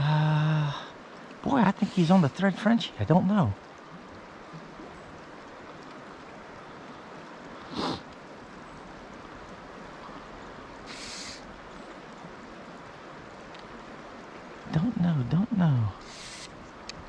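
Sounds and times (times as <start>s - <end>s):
person's voice: 0.0s - 3.6s, 14.7s - 16.1s
river current rushing: 0.0s - 17.0s
short hiss: 7.7s - 8.0s, 10.9s - 11.4s, 16.0s - 16.6s.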